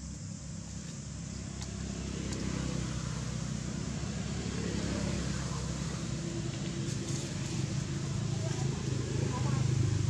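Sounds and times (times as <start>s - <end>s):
steady hiss: 0.0s - 4.0s
vehicle engine rumbling: 0.0s - 10.0s.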